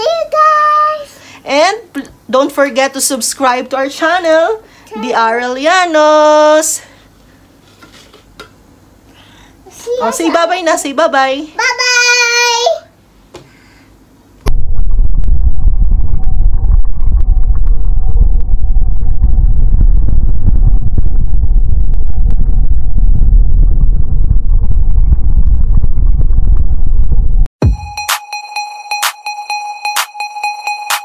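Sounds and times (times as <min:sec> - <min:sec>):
deep rumble: 0:14.4 - 0:27.5.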